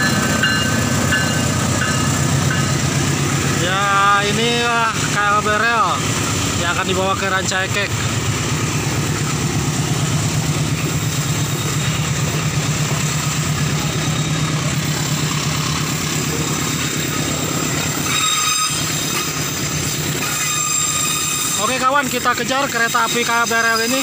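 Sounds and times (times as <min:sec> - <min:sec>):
freight train wheels rumbling: 0:00.0 - 0:24.0
wheels squealing: 0:07.8 - 0:24.0.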